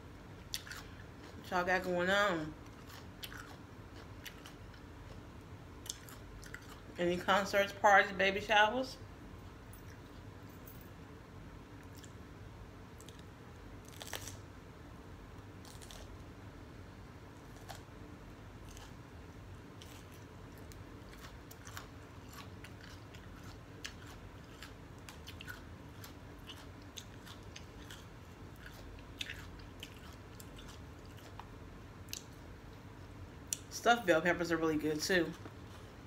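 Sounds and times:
faint chewing with crunches: 0.3s - 7.8s, 9.3s - 10.6s, 11.6s - 14.5s, 15.3s - 16.4s, 17.2s - 33.8s, 34.9s - 36.0s
biting into crisp pepper: 13.0s - 14.4s, 15.6s - 16.2s.

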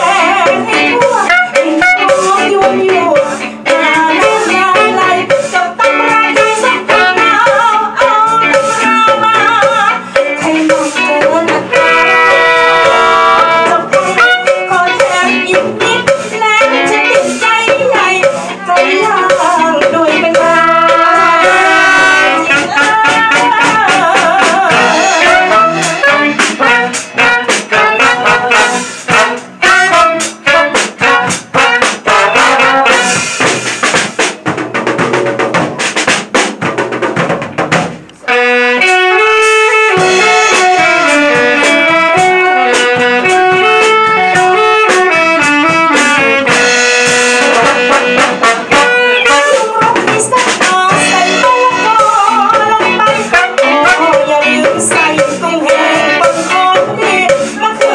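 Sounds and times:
woman singing into microphone: 0.0s - 33.2s, 39.9s - 46.6s, 47.4s - 57.9s
instrumental melody line: 0.0s - 57.9s
live band playing: 0.0s - 57.9s
rapid percussion: 0.0s - 57.9s.

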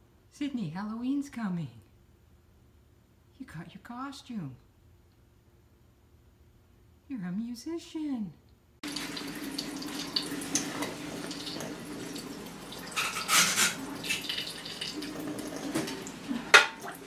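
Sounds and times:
tap water running into sink: 8.8s - 17.0s
water splashing: 8.8s - 17.0s.

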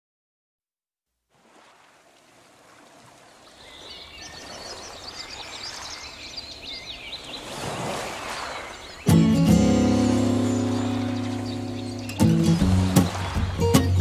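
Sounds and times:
birds chirping: 3.3s - 14.0s
sustained music chord: 9.5s - 13.0s
wash of noise: 9.7s - 14.0s.

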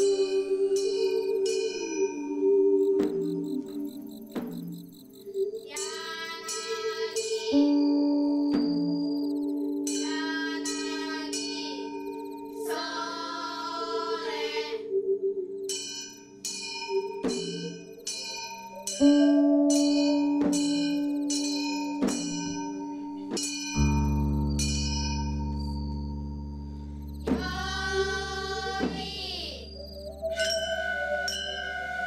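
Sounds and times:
ringing bell-like tones: 0.0s - 32.0s
sustained electronic tone: 22.7s - 32.0s
deep low drone: 23.0s - 30.4s
wavering voice-like sound: 27.3s - 32.0s.

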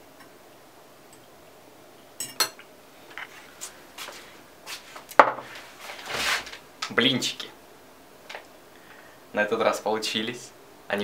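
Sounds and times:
dishes clinking: 2.2s - 2.7s.

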